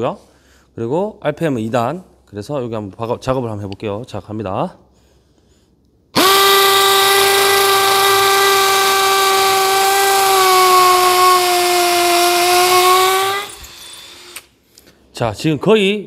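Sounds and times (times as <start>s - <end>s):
hammer drill drilling into concrete: 6.2s - 14.5s.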